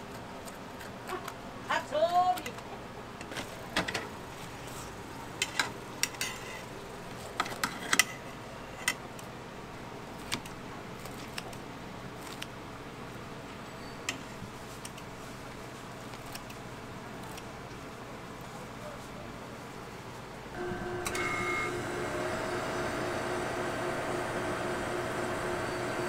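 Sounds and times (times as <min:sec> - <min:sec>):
low background hum: 0:00.0 - 0:26.0
scissors snipping: 0:12.2 - 0:12.5, 0:16.1 - 0:16.6, 0:17.2 - 0:17.5.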